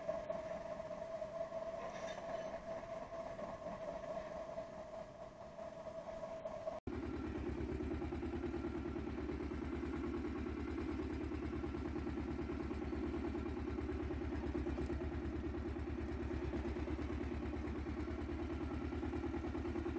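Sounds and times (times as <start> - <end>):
steady hum: 2.6 - 19.9
tractor diesel engine running: 6.9 - 19.9.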